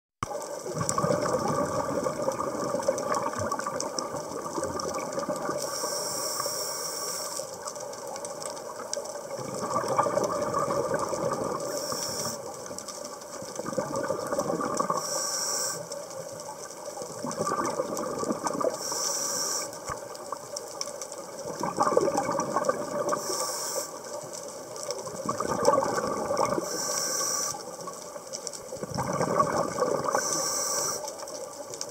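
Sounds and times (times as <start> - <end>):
exhaled bubbles rushing: 0.5 - 5.7, 9.3 - 12.4, 13.4 - 15.0, 17.0 - 18.8, 21.4 - 23.4, 25.0 - 26.8, 28.7 - 30.3
regulator inhale hiss: 5.6 - 7.6, 11.6 - 12.6, 14.9 - 16.2, 18.7 - 20.1, 23.1 - 24.2, 26.6 - 27.9, 30.1 - 31.4.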